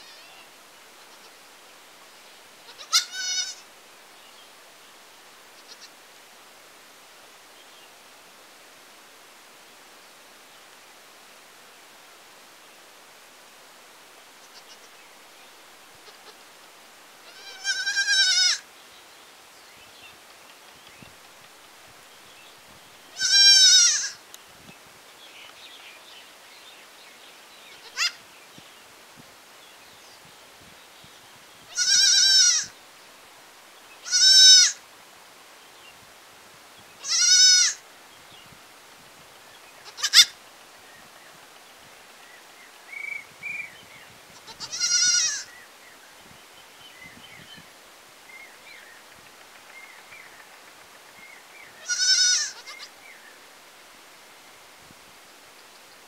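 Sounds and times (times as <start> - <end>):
goat kid bleating: 0.0 - 1.4, 2.6 - 3.6, 5.6 - 5.9, 14.4 - 14.9, 16.0 - 16.4, 17.2 - 18.6, 23.1 - 24.2, 27.8 - 28.2, 31.7 - 32.7, 34.0 - 34.8, 37.0 - 37.8, 39.8 - 40.4, 44.3 - 45.5, 51.8 - 52.9.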